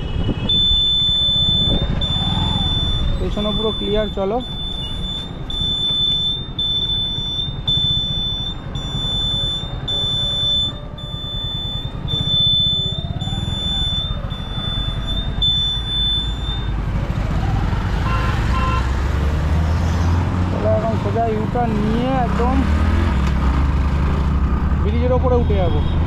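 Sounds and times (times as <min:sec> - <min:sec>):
motorcycle engine rumble: 0:00.0 - 0:26.0
turn indicator buzzer beeping: 0:00.5 - 0:16.8.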